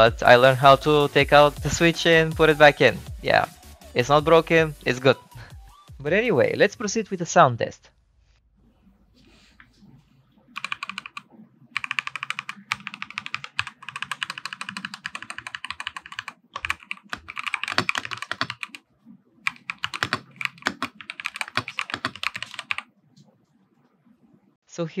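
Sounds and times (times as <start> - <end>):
mechanical keyboard typing: 10.6 - 11.2, 11.8 - 18.8, 19.4 - 22.8.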